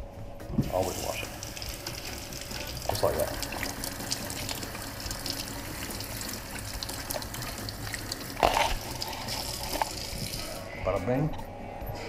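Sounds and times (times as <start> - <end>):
faucet running: 0.6 - 10.6
vegetable rinsed under water: 1.4 - 10.4.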